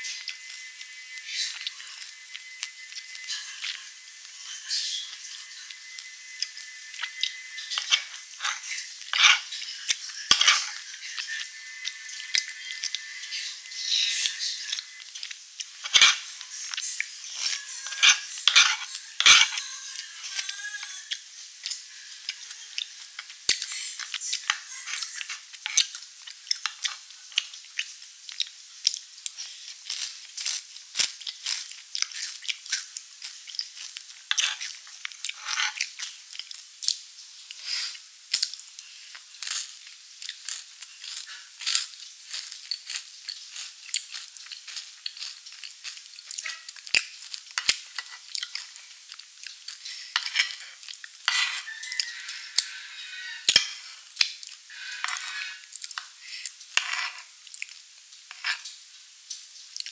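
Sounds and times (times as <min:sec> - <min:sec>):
metal spoon scraping on tray: 0:06.5 - 0:11.9, 0:15.8 - 0:16.4, 0:17.2 - 0:20.6, 0:24.5 - 0:25.8, 0:34.3 - 0:35.9, 0:47.6 - 0:48.2, 0:50.1 - 0:53.8, 0:54.7 - 0:55.6, 0:56.8 - 0:57.3, 0:58.3 - 0:58.6
wet crackly mouth sounds: 0:21.1 - 0:51.2, 0:53.5 - 0:59.9.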